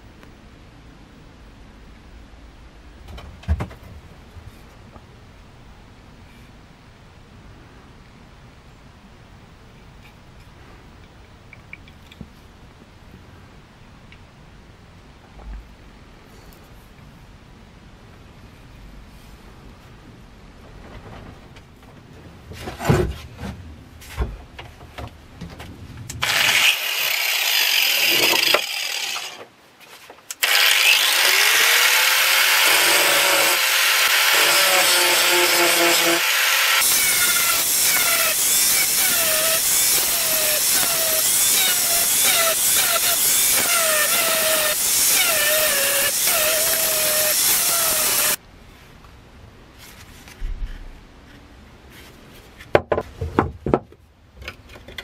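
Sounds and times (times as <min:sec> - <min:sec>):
angle grinder grinding steel: 0:26.2 - 0:29.4, 0:30.4 - 0:48.4.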